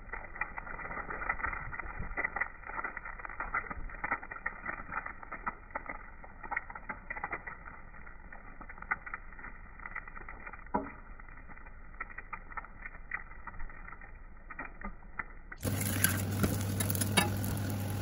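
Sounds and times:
egg sizzling in hot oil: 0.0 - 18.0
metal spatula scraping a pan: 15.6 - 17.9.

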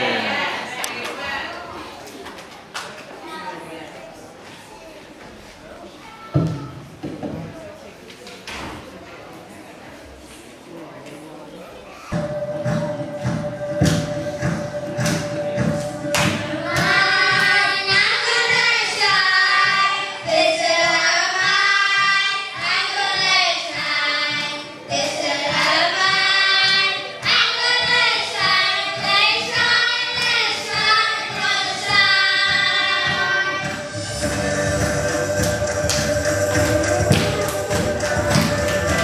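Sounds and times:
children singing into microphones: 12.0 - 39.0.

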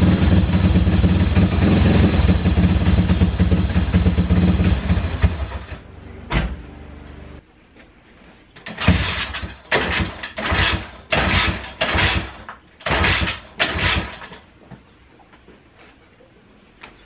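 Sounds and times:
engine turning over from kick-starter: 8.6 - 14.4.

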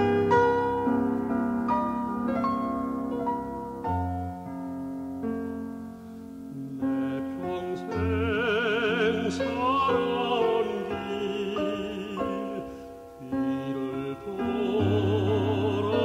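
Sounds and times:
slow piano chords: 0.0 - 16.0
operatic singing voice: 6.6 - 16.0.

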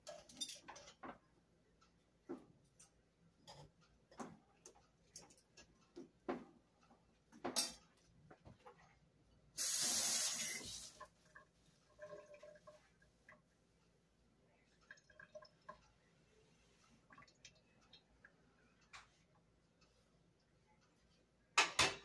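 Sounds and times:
loud even hiss: 9.6 - 10.8.

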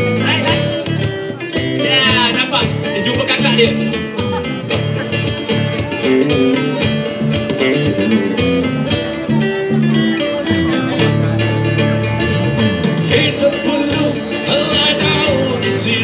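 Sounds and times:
guitar: 0.0 - 16.0
tambourine beat: 4.1 - 9.3, 11.0 - 16.0
voices singing: 10.5 - 16.0.

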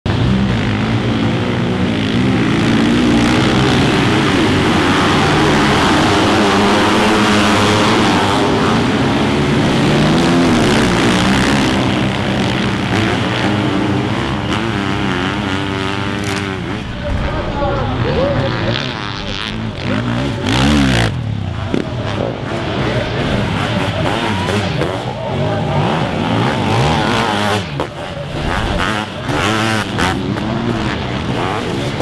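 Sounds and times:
motorcycle engines revving: 0.1 - 32.0.

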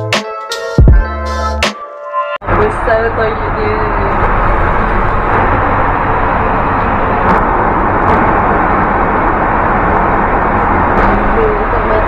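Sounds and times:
airplane cabin noise: 2.4 - 12.0.

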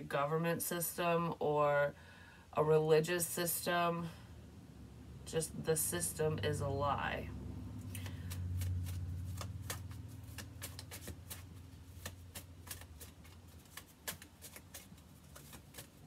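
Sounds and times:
low hum: 4.2 - 12.4
cards being shuffled: 7.8 - 16.0.

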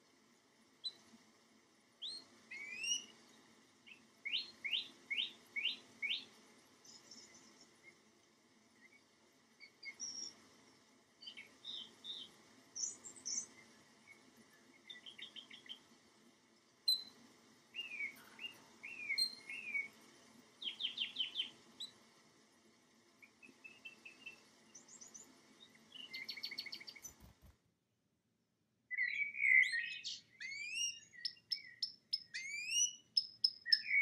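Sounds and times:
canary singing: 17.8 - 19.9, 28.9 - 34.0.

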